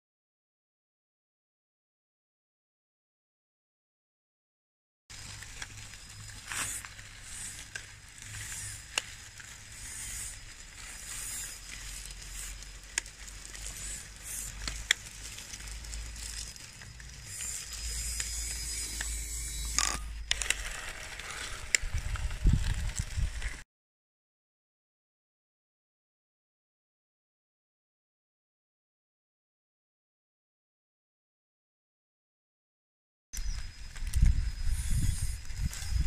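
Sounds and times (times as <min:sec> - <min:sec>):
gravel crunching: 0:05.1 - 0:23.6
small stones clicking: 0:05.1 - 0:23.6.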